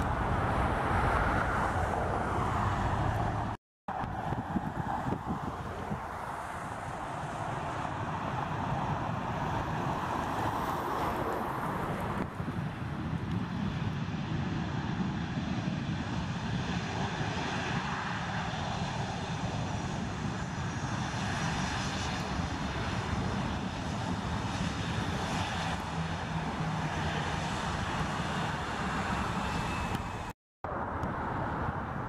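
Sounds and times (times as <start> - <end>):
jet engines running: 0.0 - 32.0.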